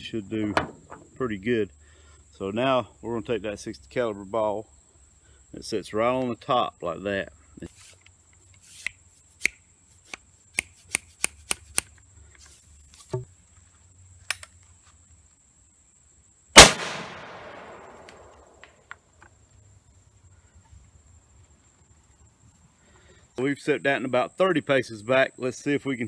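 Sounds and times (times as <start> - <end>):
shotgun shot with echo: 16.6 - 18.6.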